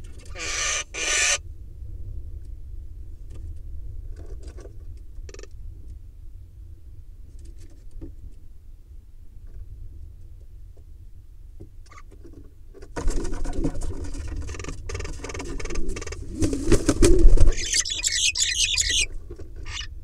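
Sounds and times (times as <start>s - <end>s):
harsh high bird calls: 0.2s - 1.4s, 17.5s - 19.1s, 19.7s - 19.9s
wings flapping: 13.0s - 19.9s.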